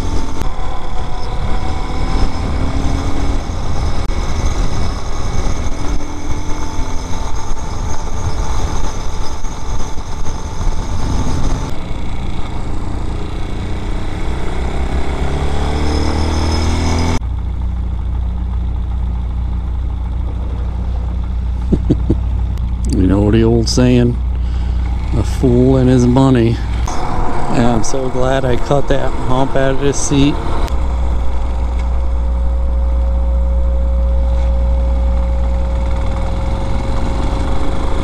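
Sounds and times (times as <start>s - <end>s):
wind rush on microphone: 0.0s - 11.8s
motorcycle engine running: 0.0s - 38.0s.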